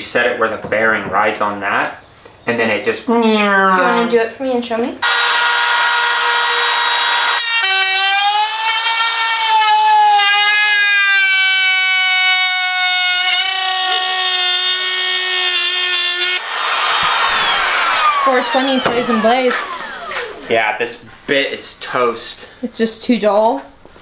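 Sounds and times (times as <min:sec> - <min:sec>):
router whining cutting wood: 0:05.0 - 0:20.6.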